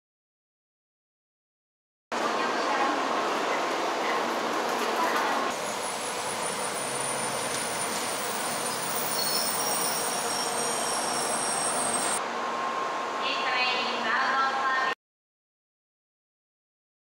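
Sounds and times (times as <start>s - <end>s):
train rushing noise: 2.2s - 14.0s
high-pitched whining squeal: 5.8s - 12.2s.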